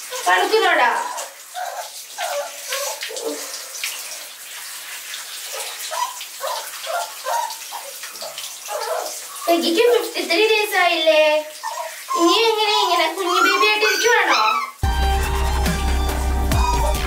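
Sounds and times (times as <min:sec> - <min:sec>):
shower spray hissing: 0:00.0 - 0:17.0
puppy whining: 0:01.1 - 0:03.5, 0:05.5 - 0:09.6, 0:11.6 - 0:14.8, 0:16.5 - 0:17.0.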